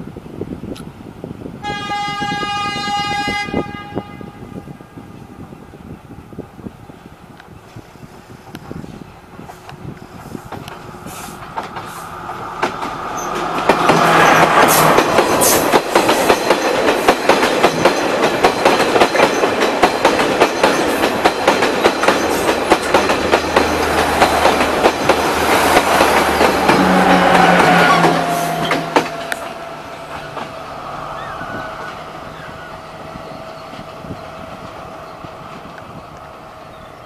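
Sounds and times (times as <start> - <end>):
train passing: 0.0 - 37.0
wheels clattering over rail joints: 10.4 - 30.7.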